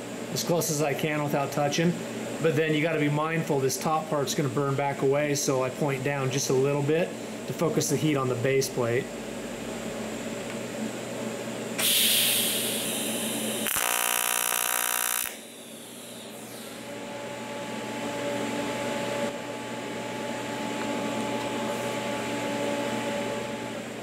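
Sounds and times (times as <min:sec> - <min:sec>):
welding arc strike hiss: 0:11.8 - 0:16.8
welding arc buzzing: 0:11.8 - 0:16.9.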